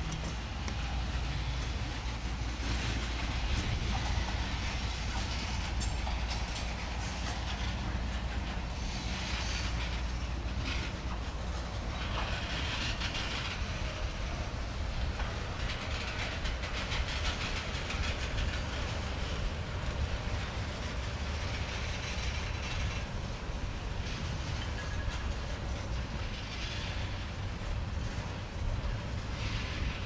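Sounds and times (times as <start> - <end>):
steel wheels rumbling on rail: 0.0 - 30.0
wheels clicking over rail joints: 0.0 - 30.0
hiss: 0.2 - 30.0.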